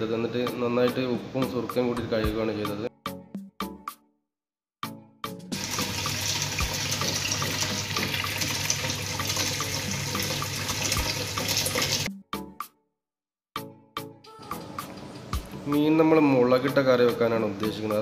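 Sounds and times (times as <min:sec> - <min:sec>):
tap water splashing into pot: 0:05.6 - 0:12.1.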